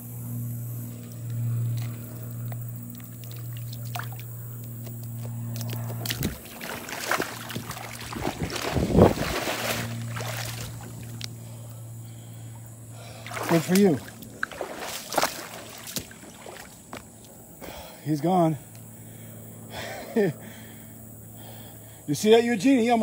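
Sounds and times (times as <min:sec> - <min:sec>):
steady low hum: 0:00.0 - 0:23.0
fish thrashing and splashing: 0:03.0 - 0:11.3, 0:13.1 - 0:16.9.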